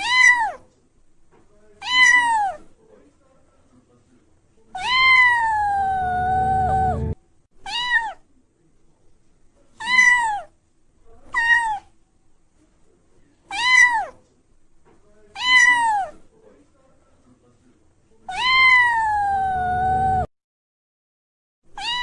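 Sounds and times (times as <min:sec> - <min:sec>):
cat meowing: 0:00.0 - 0:00.6, 0:01.8 - 0:02.6, 0:04.8 - 0:08.2, 0:09.8 - 0:10.5, 0:11.3 - 0:11.9, 0:13.5 - 0:14.2, 0:15.3 - 0:16.2, 0:18.3 - 0:20.3, 0:21.8 - 0:22.0.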